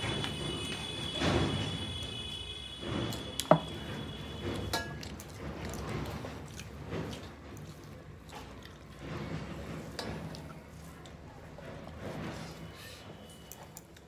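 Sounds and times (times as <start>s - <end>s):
hand mixing food on steel plates: 0.0s - 14.0s
eating sounds: 5.0s - 9.0s.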